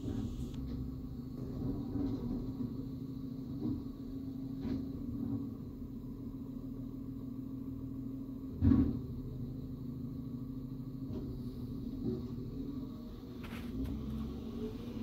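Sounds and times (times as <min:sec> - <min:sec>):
diesel truck engine running: 0:00.0 - 0:04.6, 0:11.1 - 0:15.0.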